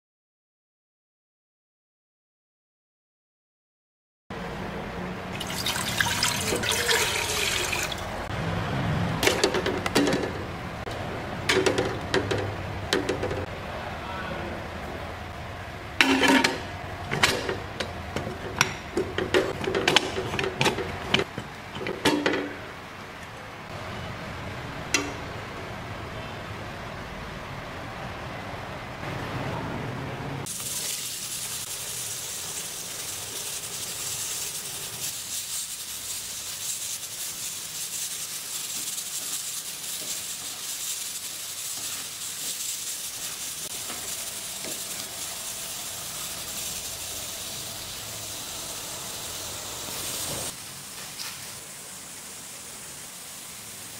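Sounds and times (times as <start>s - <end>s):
potatoes deep-frying in oil: 30.5s - 53.9s.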